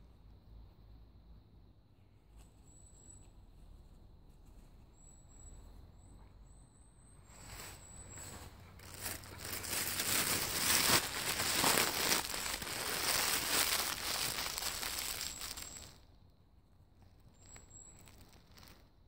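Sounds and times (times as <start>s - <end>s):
dry leaves crunching underfoot: 7.4s - 16.0s, 17.6s - 18.8s.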